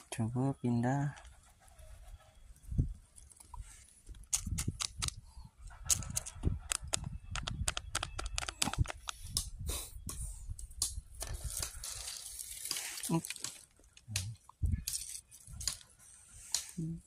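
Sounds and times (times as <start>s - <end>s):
dry leaves and straw crackling: 11.2s - 16.8s.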